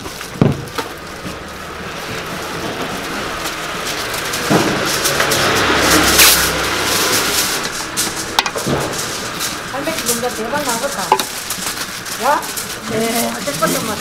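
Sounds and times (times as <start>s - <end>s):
indistinct voices: 1.0s - 14.0s.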